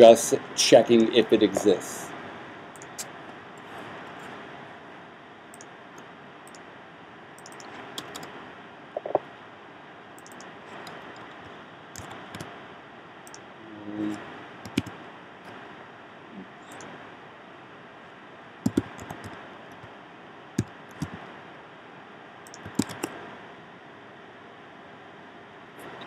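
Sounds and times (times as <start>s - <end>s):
background hiss: 0.0s - 26.0s
computer keyboard clicks: 7.4s - 8.3s, 10.2s - 11.0s, 12.0s - 12.5s, 14.6s - 14.9s, 18.7s - 19.9s, 22.5s - 23.1s.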